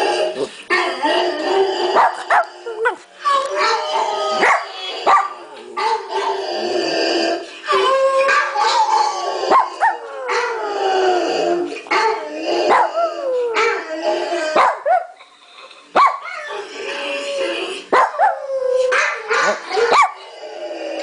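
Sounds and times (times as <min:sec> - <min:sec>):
dogs howling: 0:00.0 - 0:15.1, 0:16.2 - 0:21.0
dogs yipping and barking: 0:01.9 - 0:02.5, 0:03.6 - 0:06.4, 0:07.9 - 0:10.6, 0:11.9 - 0:15.2, 0:16.0 - 0:16.7, 0:17.9 - 0:20.2.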